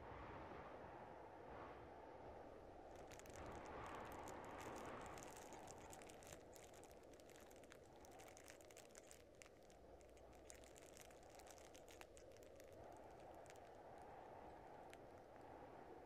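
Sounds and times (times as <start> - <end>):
faint low hum: 0.0 - 16.0
faint crackles: 2.6 - 16.0.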